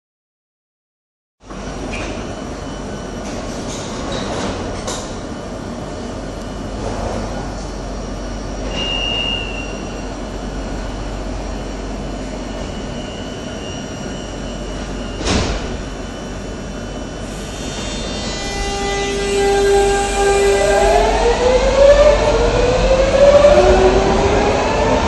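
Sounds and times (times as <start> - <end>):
train equipment humming: 1.5 - 25.0.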